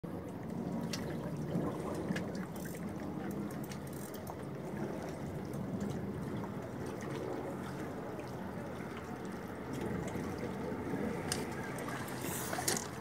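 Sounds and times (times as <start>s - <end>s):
small waves lapping against boat: 0.0s - 13.0s.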